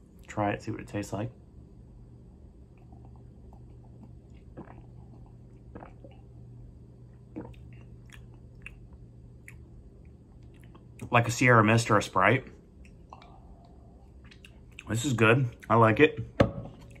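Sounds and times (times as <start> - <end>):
low steady hum: 0.0 - 17.0
person sipping and swallowing: 2.7 - 9.6, 12.8 - 14.9.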